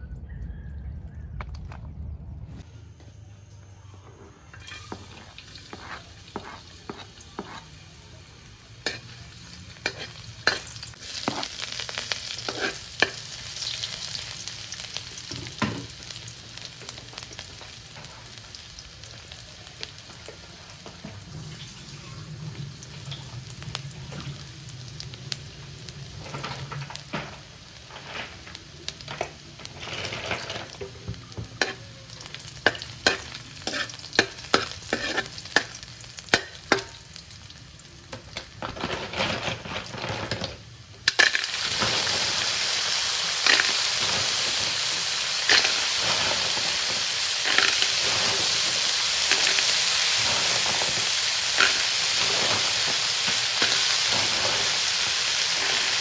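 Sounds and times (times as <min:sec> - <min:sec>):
metal spoon scraping a wok: 0:04.6 - 0:07.8, 0:08.8 - 0:13.8, 0:29.1 - 0:37.0, 0:43.0 - 0:56.0
garlic sizzling in hot oil: 0:04.6 - 0:56.0.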